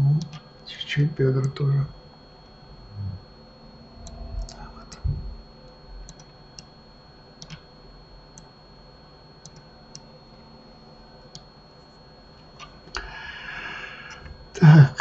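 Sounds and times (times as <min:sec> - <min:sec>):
faint high whine: 0:00.0 - 0:15.0
computer mouse clicks: 0:00.2 - 0:00.4, 0:06.0 - 0:06.7, 0:07.4 - 0:07.7, 0:08.3 - 0:08.5, 0:09.4 - 0:10.1.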